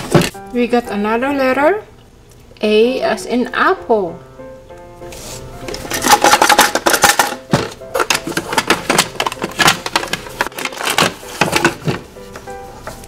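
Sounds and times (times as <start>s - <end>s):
plastic toys clattering: 5.7s - 12.0s.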